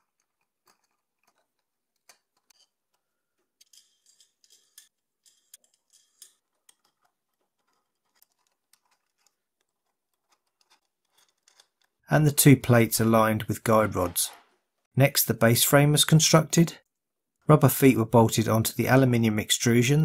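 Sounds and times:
hex key clicking and scraping: 0.0s - 12.1s.

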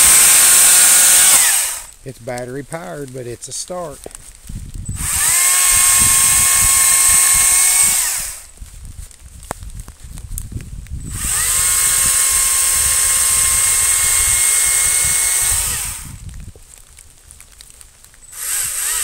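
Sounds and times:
electric chainsaw whine: 0.0s - 2.0s, 4.9s - 8.6s, 11.0s - 16.2s, 18.2s - 19.0s.

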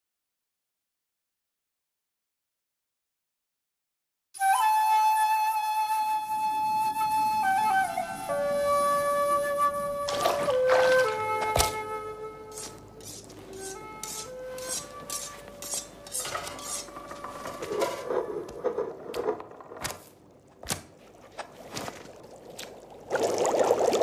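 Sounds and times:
soft music: 4.4s - 18.4s
dishes and utensils clinking: 12.5s - 19.4s.

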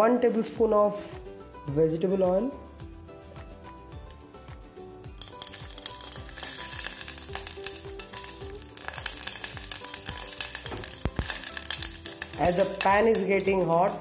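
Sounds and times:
oil sizzling in a saucepan: 5.0s - 14.0s.

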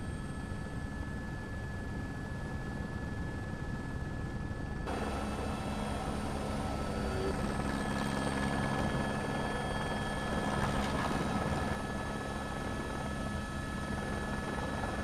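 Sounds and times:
mechanical engine drone: 4.8s - 15.0s.

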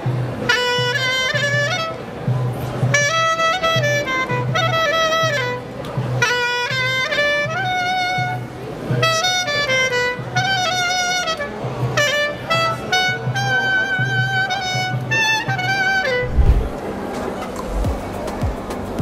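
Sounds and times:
clarinet melody: 0.5s - 2.2s, 2.9s - 16.8s
short low thump: 16.2s - 16.8s, 17.7s - 18.1s.

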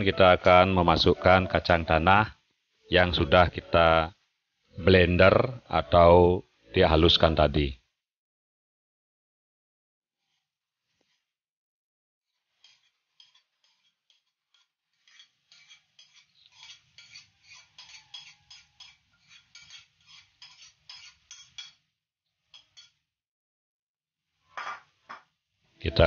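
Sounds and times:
utensil scraping a bowl: 10.2s - 11.4s, 12.3s - 21.8s, 22.5s - 23.0s.

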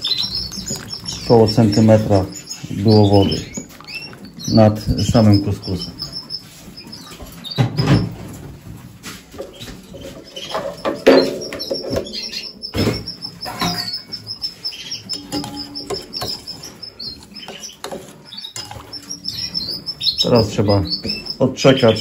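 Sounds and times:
canaries chirping: 0.0s - 22.0s
knocks and rustles: 6.6s - 14.2s.

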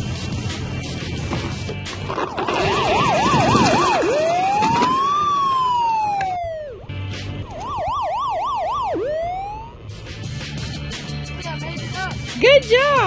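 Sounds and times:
toy police siren yelping and wailing: 2.5s - 6.8s.

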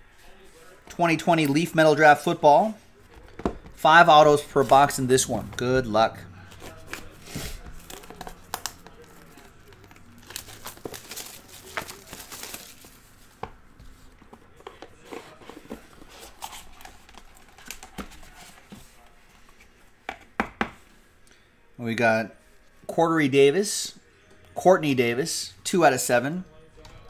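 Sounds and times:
plastic wrap crinkling and tearing: 6.5s - 13.4s.

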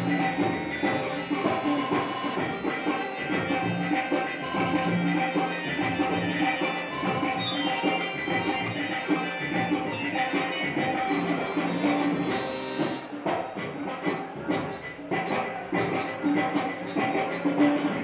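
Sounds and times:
held melody line: 0.0s - 14.4s
jingling hand percussion: 0.0s - 18.0s
tabla drumming: 0.0s - 18.0s.

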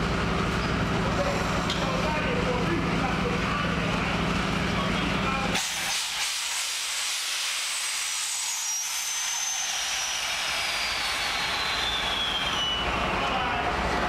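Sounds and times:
hissing around a train: 5.5s - 14.0s.

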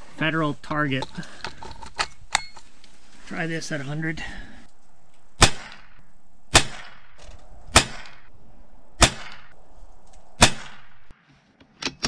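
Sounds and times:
rifle shots: 5.4s - 8.3s, 9.0s - 9.6s, 10.4s - 11.1s.

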